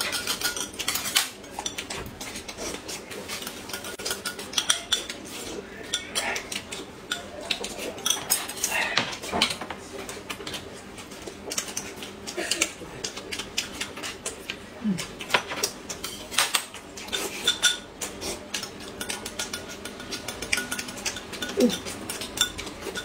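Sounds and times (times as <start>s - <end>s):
chopsticks clicking on plates: 3.3s - 5.2s, 5.8s - 23.0s
chewing: 10.1s - 17.4s.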